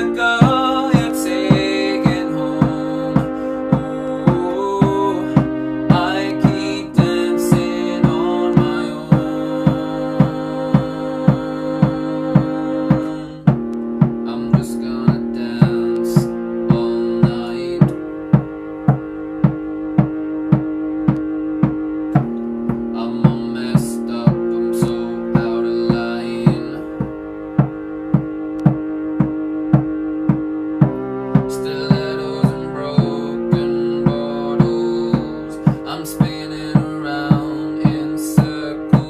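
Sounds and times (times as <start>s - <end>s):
electronic keyboard chords: 0.0s - 39.0s
programmed drum beat: 0.0s - 39.0s.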